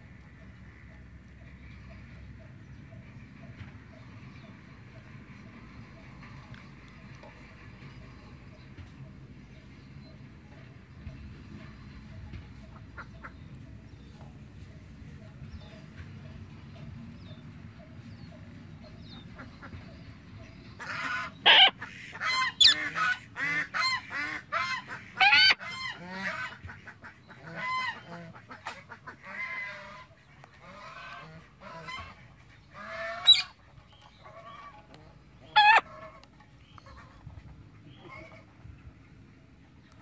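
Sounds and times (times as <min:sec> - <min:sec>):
parrots squawking: 0:20.8 - 0:26.4, 0:32.8 - 0:33.6, 0:35.4 - 0:36.0.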